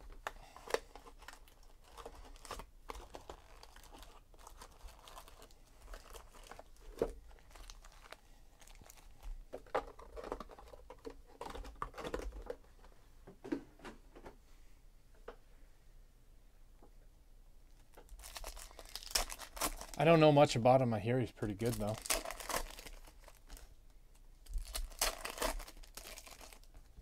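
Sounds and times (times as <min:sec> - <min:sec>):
foil wrappers crinkling: 0:00.0 - 0:12.5, 0:18.1 - 0:20.2, 0:21.4 - 0:23.7, 0:24.4 - 0:27.0.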